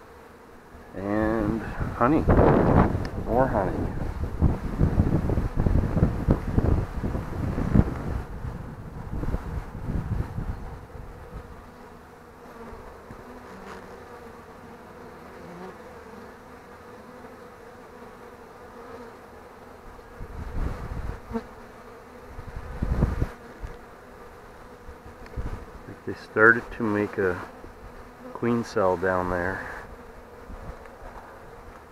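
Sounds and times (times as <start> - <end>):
bees buzzing: 0.0 - 31.9
wind rumble on microphone: 1.3 - 11.7, 20.1 - 21.4, 22.3 - 23.8, 24.9 - 26.0, 29.8 - 31.2.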